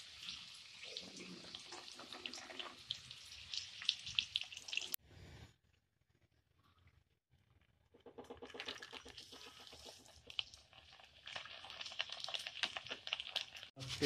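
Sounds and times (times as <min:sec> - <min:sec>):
lentils sizzling in hot oil: 0:00.0 - 0:05.0, 0:09.1 - 0:14.0.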